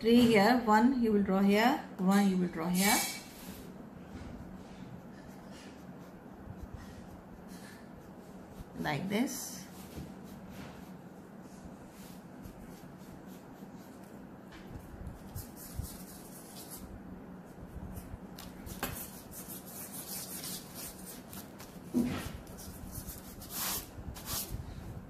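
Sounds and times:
faint steady hum: 0.0 - 25.0
pencil scratching on paper: 4.4 - 8.8, 12.0 - 14.2, 15.0 - 16.8, 18.7 - 24.5.

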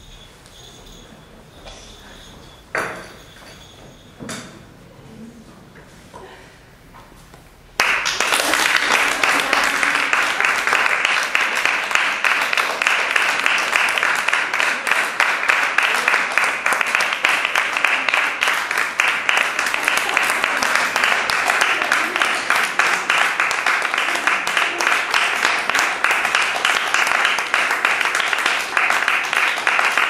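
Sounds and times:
audience applauding: 7.8 - 30.0.

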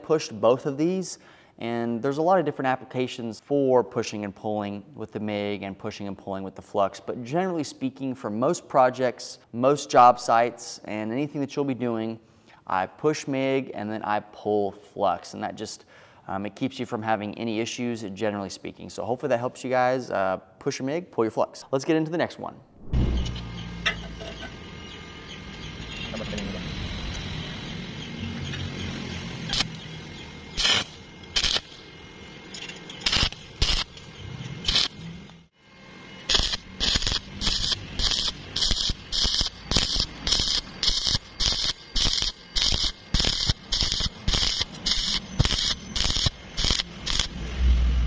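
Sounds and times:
welding arc crackling: 29.4 - 32.0, 32.9 - 35.5, 36.1 - 47.8.

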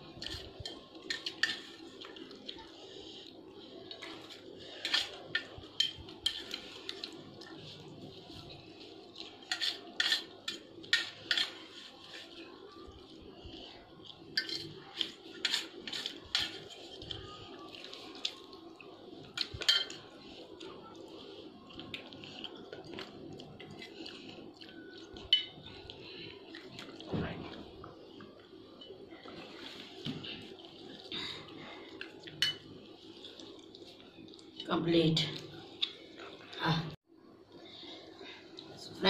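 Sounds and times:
spoons clinking on steel plates: 0.2 - 1.8, 9.4 - 11.6, 14.4 - 17.1, 19.4 - 20.1, 25.2 - 25.6, 32.4 - 32.7.

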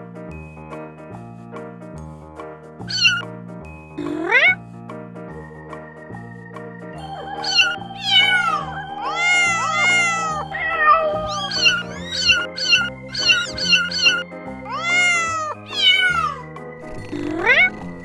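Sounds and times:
background music: 0.0 - 18.0
kittens meowing: 2.8 - 3.2, 4.0 - 4.6, 7.2 - 16.5, 17.1 - 17.8.

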